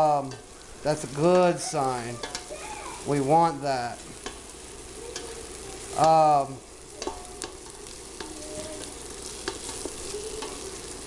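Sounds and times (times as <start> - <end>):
onions sizzling in oil: 0.0 - 11.0
spoon stirring and scraping: 2.2 - 2.5, 6.9 - 11.0
sharp taps on pot: 7.0 - 7.6.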